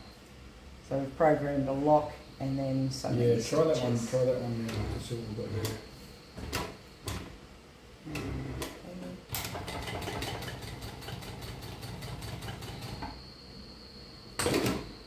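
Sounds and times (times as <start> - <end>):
sewing machine motor hum: 8.1 - 13.2
sewing machine stitches ticking: 9.3 - 13.0.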